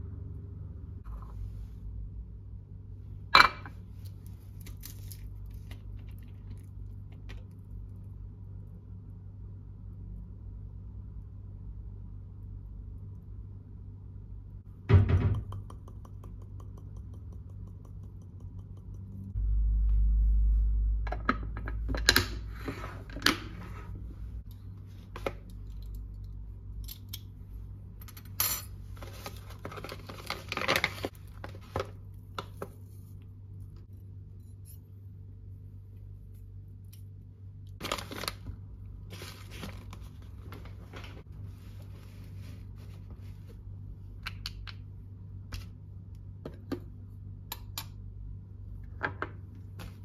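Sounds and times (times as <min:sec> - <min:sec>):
steady low hum: 0:00.0 - 0:50.0
low rumble: 0:18.9 - 0:22.6.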